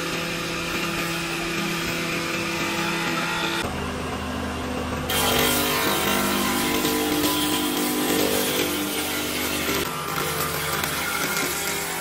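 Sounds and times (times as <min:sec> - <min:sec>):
power tool motor whining: 0:05.1 - 0:12.0.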